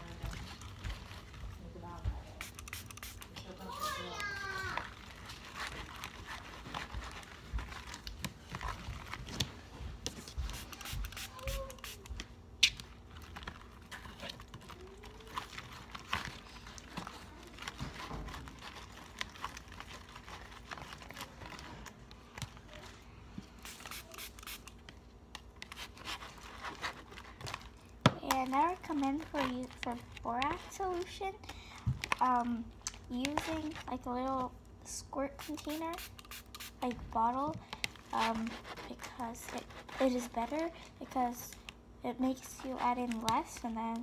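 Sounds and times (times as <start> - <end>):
slime squishing and crackling: 0.0 - 9.7, 10.4 - 23.0, 23.6 - 34.6
paper plate rustling and scraping: 0.0 - 12.1, 13.1 - 24.3, 25.6 - 31.2, 33.1 - 34.1, 38.0 - 41.2.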